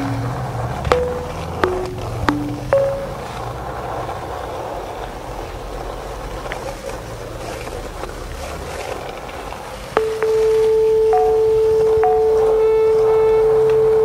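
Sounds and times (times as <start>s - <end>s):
held musical tone: 0.0s - 3.4s, 10.0s - 14.0s
skateboard wheels rolling on asphalt: 0.0s - 10.1s.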